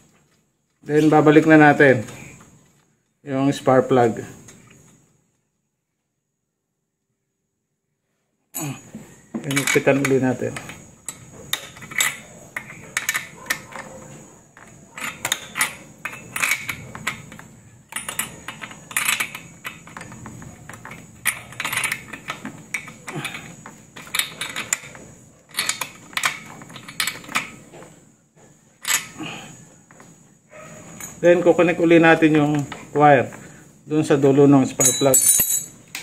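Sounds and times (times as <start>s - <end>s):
socket wrench clinking metal: 9.4s - 14.0s, 14.6s - 27.6s, 28.8s - 29.2s, 30.9s - 31.5s, 34.7s - 36.0s.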